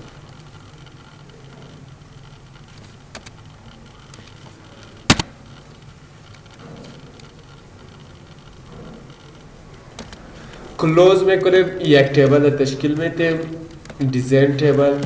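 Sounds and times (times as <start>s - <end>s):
computer mouse clicks: 0.0s - 10.7s
microphone hiss and hum: 0.0s - 15.0s.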